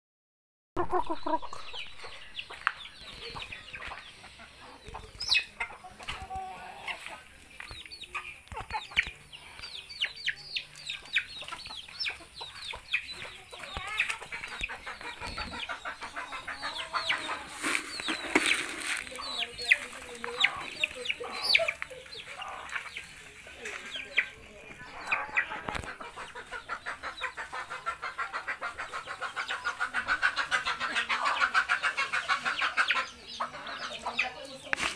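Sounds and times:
chickens clucking: 0.8s - 34.9s.

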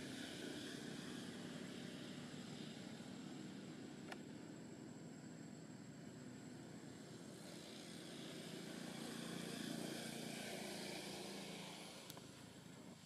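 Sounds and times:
distant aircraft engine drone: 0.0s - 13.0s.

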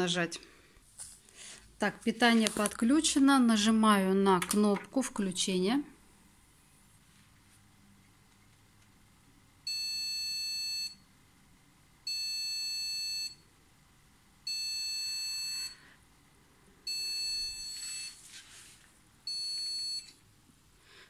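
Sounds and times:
computer long high beeps: 14.5s - 15.8s, 16.9s - 18.2s.

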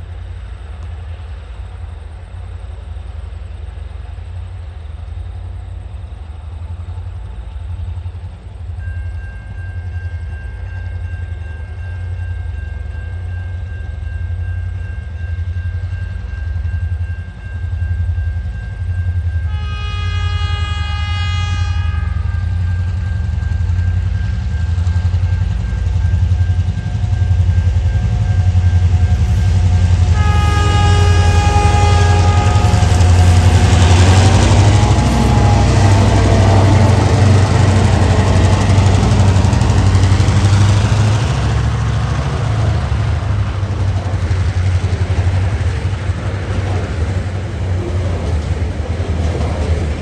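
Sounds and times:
diesel locomotive engine rumbling: 0.0s - 50.0s
locomotive horn blast: 19.5s - 22.8s, 28.9s - 40.1s
steady high tone: 22.2s - 42.4s.

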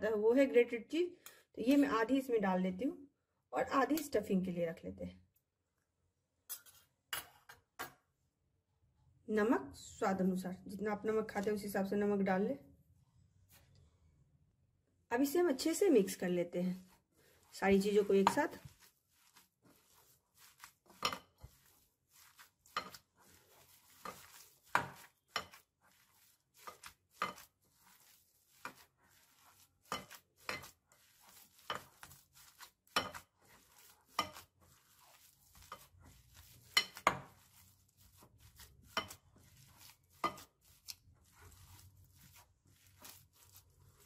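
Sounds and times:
hand mixing mash: 15.1s - 44.0s.

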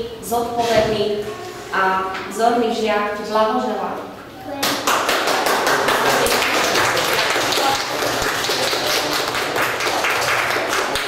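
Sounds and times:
children applauding: 4.6s - 11.0s.

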